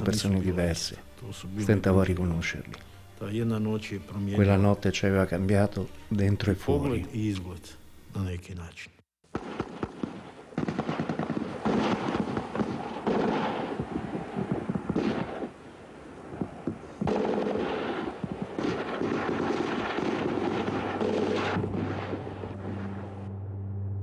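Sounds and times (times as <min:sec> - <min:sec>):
automatic gunfire: 0:09.3 - 0:15.5, 0:17.0 - 0:22.1.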